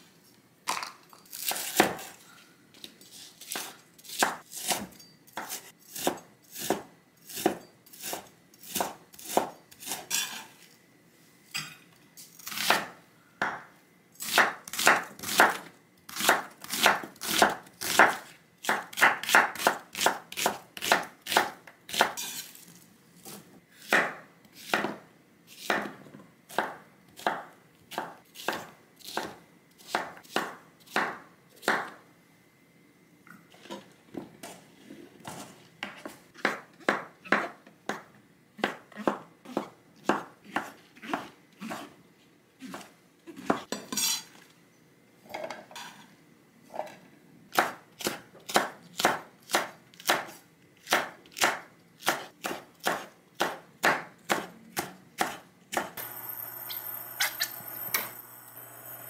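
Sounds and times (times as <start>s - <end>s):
knife chopping on wooden board: 3.5s - 10.0s, 14.3s - 22.2s, 26.5s - 31.9s, 47.5s - 56.0s.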